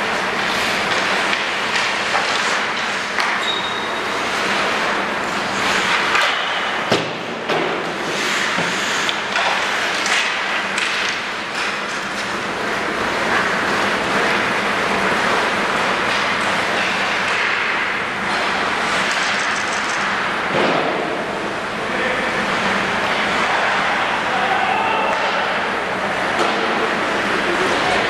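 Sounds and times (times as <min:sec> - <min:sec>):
hockey sticks and pucks knocking: 0:00.0 - 0:21.2, 0:24.9 - 0:28.0
skates scraping on ice: 0:00.1 - 0:03.4, 0:04.1 - 0:06.4, 0:07.8 - 0:20.3
sharp crack of puck: 0:05.8 - 0:12.0, 0:16.1 - 0:17.8, 0:18.4 - 0:21.0.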